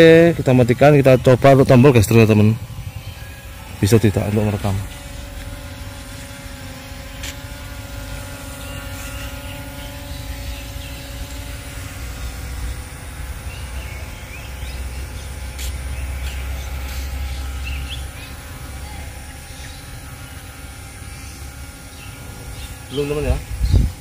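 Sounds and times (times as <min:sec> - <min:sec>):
drone propellers humming: 0:00.0 - 0:24.0
wind rumble on microphone: 0:23.4 - 0:24.0.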